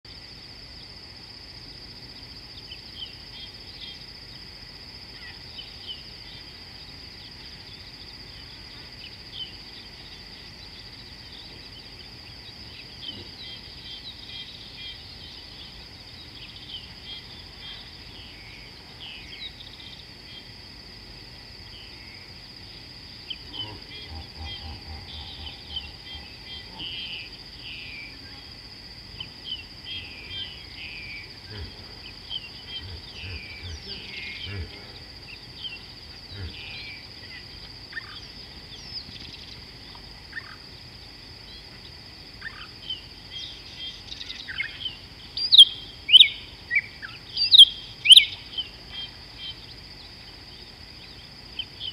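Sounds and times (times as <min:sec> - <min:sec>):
high-pitched insect drone: 0:00.1 - 0:51.9
bird chirps and calls: 0:43.5 - 0:49.1.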